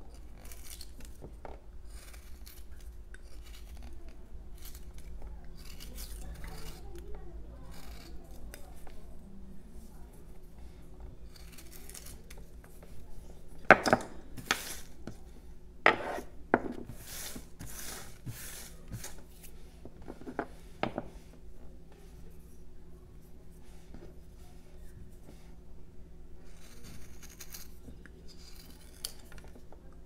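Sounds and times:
hand brushing wood shavings: 16.9 - 19.7.

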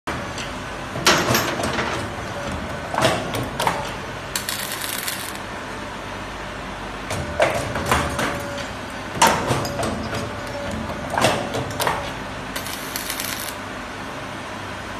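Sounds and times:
welding hiss: 4.4 - 5.4, 12.6 - 13.6.

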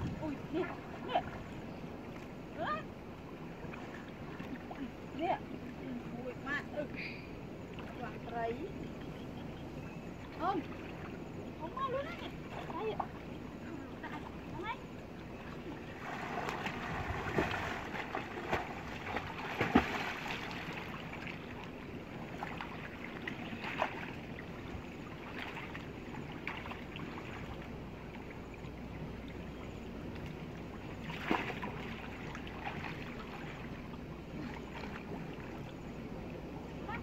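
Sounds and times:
river water sloshing: 0.0 - 37.0
sharp splashes: 15.9 - 21.7, 31.0 - 33.7.

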